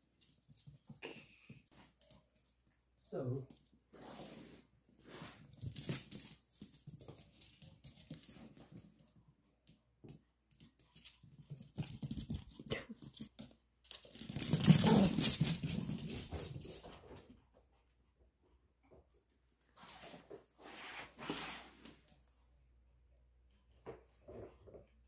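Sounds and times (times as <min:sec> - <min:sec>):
dog paws scrabbling on wooden floor: 0:05.1 - 0:17.9
dogs scuffling and rustling: 0:10.6 - 0:17.2.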